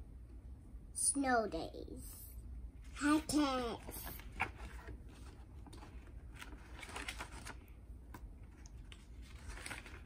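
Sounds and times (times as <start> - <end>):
low room hum: 0.0 - 10.0
paper pages rustling: 3.6 - 10.0.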